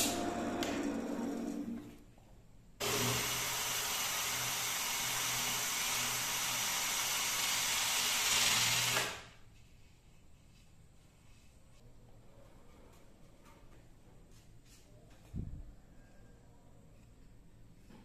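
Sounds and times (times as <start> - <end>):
drill sanding wood: 2.8 - 9.1.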